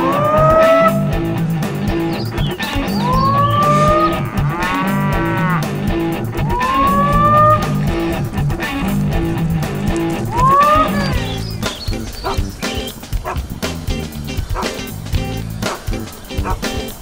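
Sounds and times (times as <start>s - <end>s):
guitar music with steady beat: 0.0s - 17.0s
cattle mooing: 3.0s - 11.4s.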